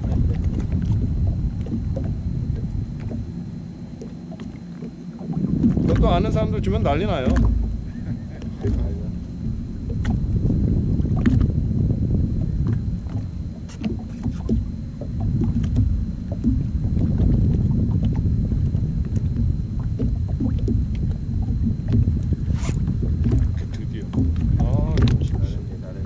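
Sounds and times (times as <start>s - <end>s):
wind and water rumble: 0.0s - 26.0s.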